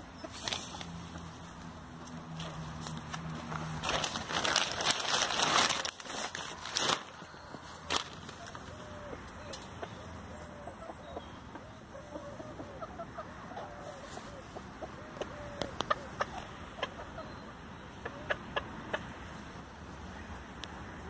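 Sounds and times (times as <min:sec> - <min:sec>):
chickens clucking: 0:00.0 - 0:02.8, 0:07.2 - 0:20.3.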